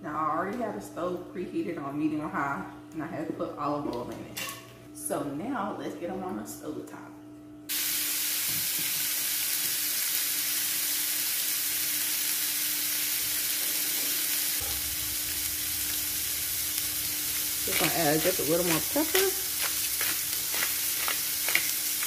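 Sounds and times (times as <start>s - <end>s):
fish frying in oil: 7.7s - 22.0s.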